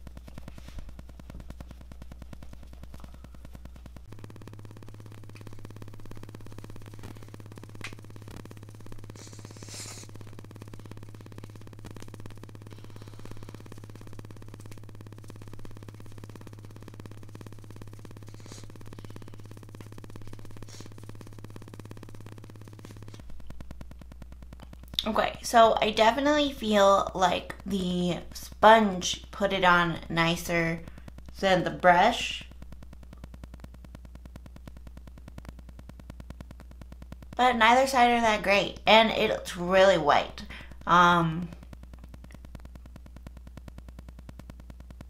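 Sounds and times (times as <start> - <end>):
sponge dabbing on skin: 0.0 - 26.1
steady low hum: 0.0 - 45.0.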